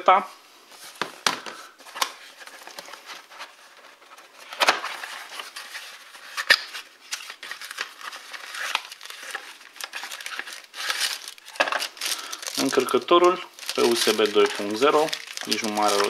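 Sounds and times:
cardboard rustling and scraping: 0.7 - 12.0.

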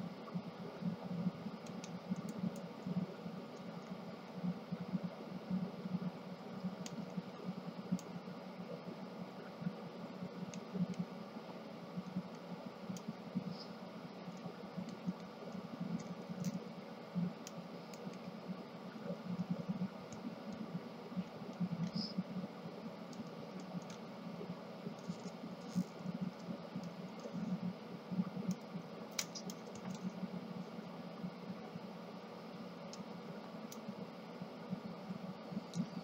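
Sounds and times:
plastic clicks and scraping: 25.0 - 27.4, 28.5 - 30.1
sharp plastic snaps: 28.5 - 30.1.

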